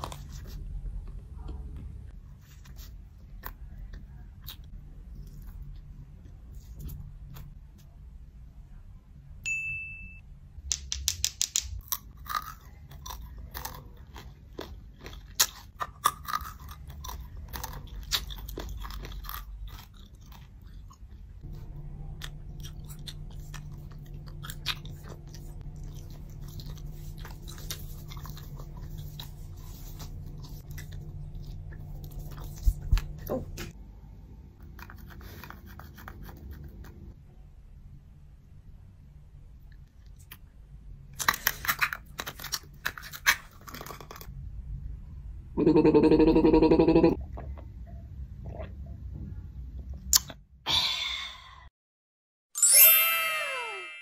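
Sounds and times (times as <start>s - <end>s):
short bright ding: 9.5s - 10.2s
biting chewing and crunching: 11.8s - 33.3s
steady low hum: 16.3s - 41.2s.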